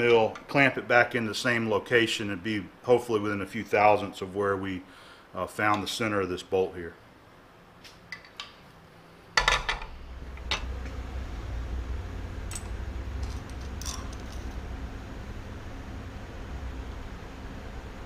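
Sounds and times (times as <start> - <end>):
steady low hum: 0.0 - 18.0
metal clatter: 12.5 - 14.6
metal tools clinking: 12.5 - 14.6.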